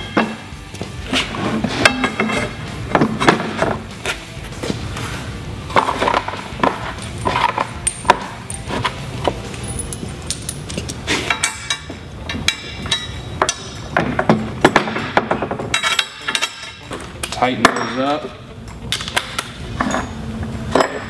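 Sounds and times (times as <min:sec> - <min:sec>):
background music: 0:00.0 - 0:21.0
metal hardware clinking: 0:05.8 - 0:21.0.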